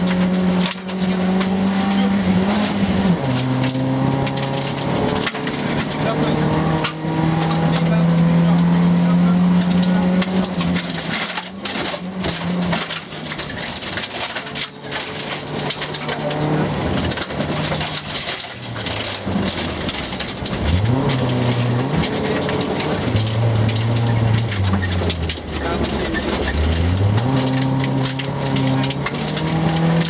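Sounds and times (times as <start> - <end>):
rally car engine revving: 0.0 - 30.0
gravel hitting car underbody: 9.5 - 30.0.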